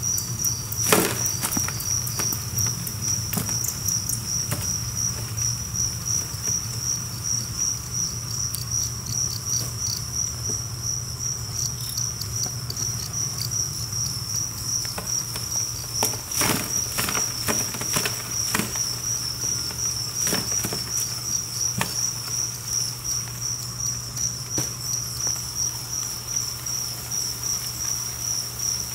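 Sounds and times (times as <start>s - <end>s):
crickets chirping: 0.0s - 28.9s
cardboard clicking and scraping: 14.9s - 21.2s.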